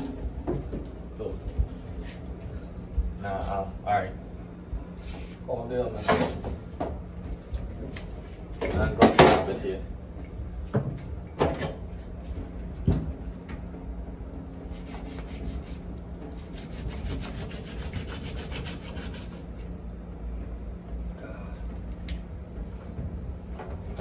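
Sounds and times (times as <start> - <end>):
knife sawing strokes: 14.7 - 15.8, 16.4 - 19.5.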